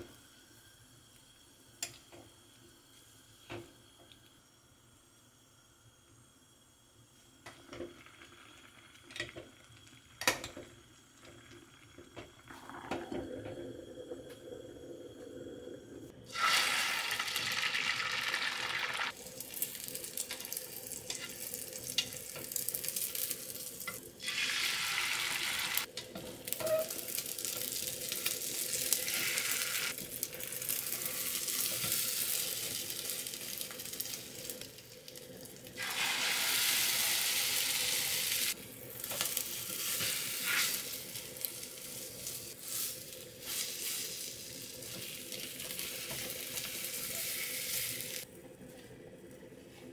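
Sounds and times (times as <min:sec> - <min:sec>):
egg sizzling in a hot pan: 0:16.2 - 0:48.3.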